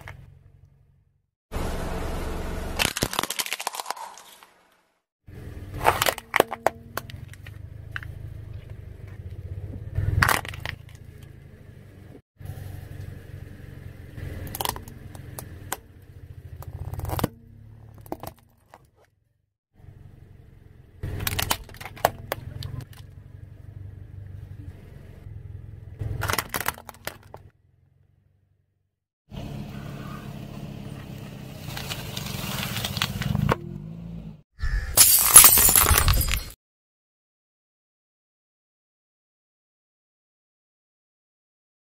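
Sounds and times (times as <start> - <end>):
low engine rumble: 0.0 - 2.8, 5.3 - 18.8, 19.8 - 28.7, 29.3 - 34.4
plastic toys cracking under tyre: 2.8 - 4.6, 5.8 - 8.2, 10.0 - 11.3, 14.4 - 15.8, 16.6 - 19.0, 21.0 - 23.1, 26.0 - 27.5.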